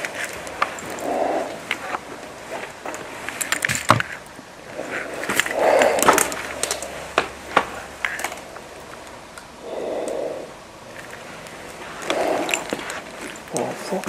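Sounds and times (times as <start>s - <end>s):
breath through a respirator: 4.8s - 7.0s, 9.6s - 10.6s
debris crunching underfoot: 10.9s - 14.0s.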